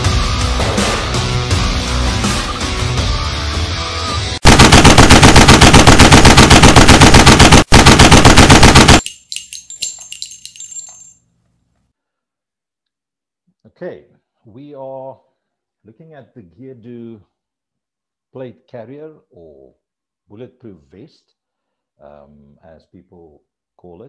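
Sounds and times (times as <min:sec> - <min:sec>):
loud background music: 0:00.0 - 0:04.4
automatic gunfire: 0:04.4 - 0:09.1
metallic ringing: 0:09.0 - 0:11.2.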